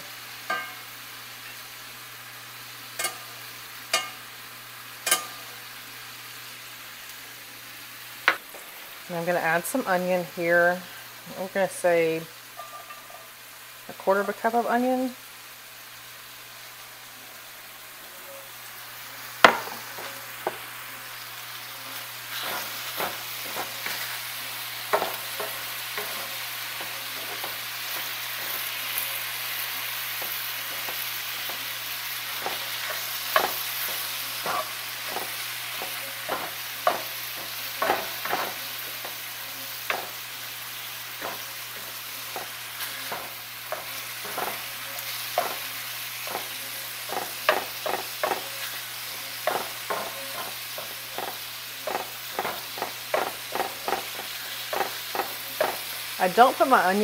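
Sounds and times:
meat sizzling in a skillet: 0.0s - 57.0s
spatula tapping and scraping pan: 0.5s - 0.8s, 3.0s - 3.3s, 3.9s - 4.2s, 5.0s - 5.4s, 19.4s - 20.6s, 22.3s - 24.2s, 24.8s - 29.0s, 30.2s - 40.2s, 41.1s - 55.9s
loud knock on pan: 19.4s - 19.8s.

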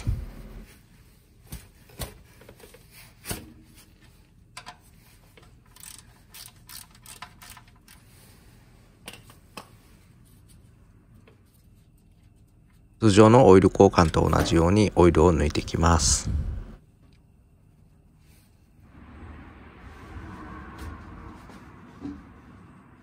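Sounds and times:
wrench clicking on metal: 5.7s - 8.0s.

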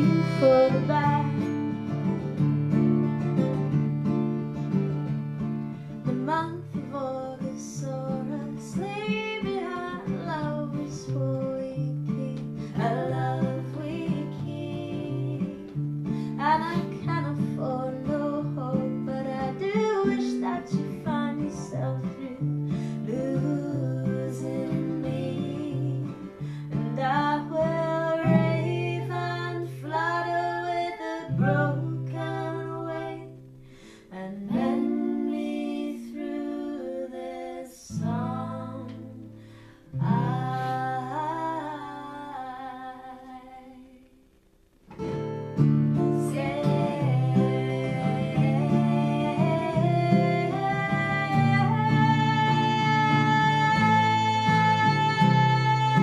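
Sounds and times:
accordion chords: 0.0s - 1.8s
woman singing: 0.0s - 1.9s, 6.0s - 44.2s, 46.0s - 56.0s
strummed acoustic guitar: 0.0s - 42.4s, 44.8s - 56.0s.

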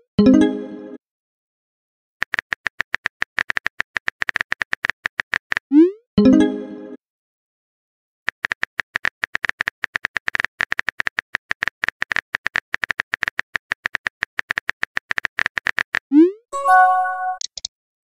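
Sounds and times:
phone keyboard typing clicks: 2.2s - 5.6s, 8.3s - 16.0s, 17.4s - 17.7s.

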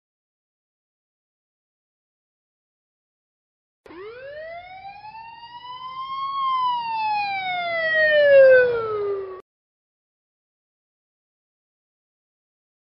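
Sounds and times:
emergency siren wailing: 3.9s - 9.4s.

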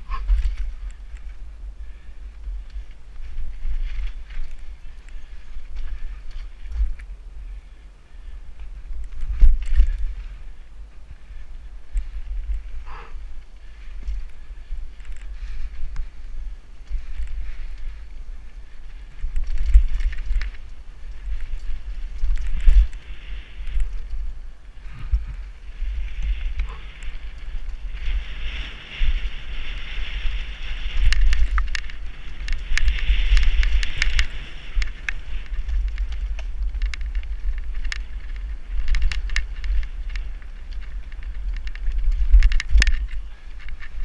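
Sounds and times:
bike rattling and clicking: 0.0s - 44.0s
wind buffeting microphone: 0.0s - 44.0s.

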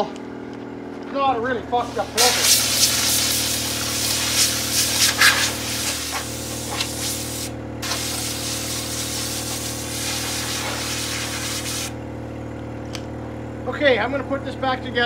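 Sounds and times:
low machine hum: 0.0s - 15.0s
compressed air hissing: 1.8s - 12.0s.

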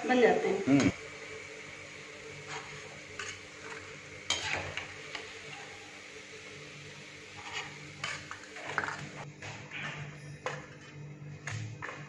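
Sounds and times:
food sizzling in hot oil: 0.0s - 9.2s.

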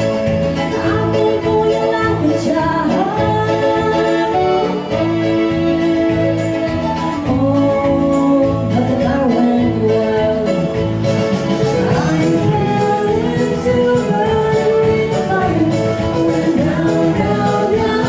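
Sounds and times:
keyboard accompaniment: 0.0s - 18.0s
woman singing into a microphone: 0.0s - 18.0s.

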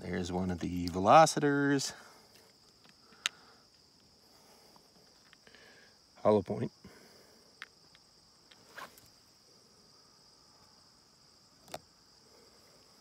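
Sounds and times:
faint crickets chirring: 0.0s - 13.0s
small taps and clicks: 2.7s - 3.4s.

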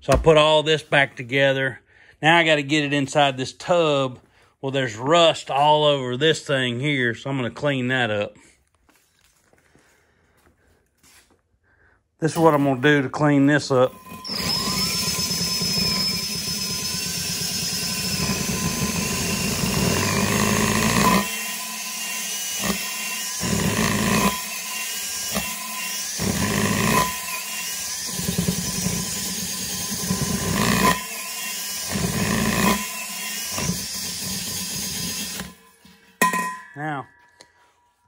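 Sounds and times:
cordless drill scrubbing rusty metal: 12.2s - 36.2s.

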